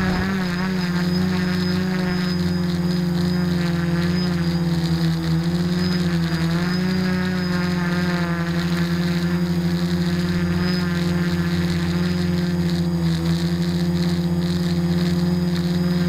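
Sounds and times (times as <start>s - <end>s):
drone motors humming: 0.0s - 16.0s.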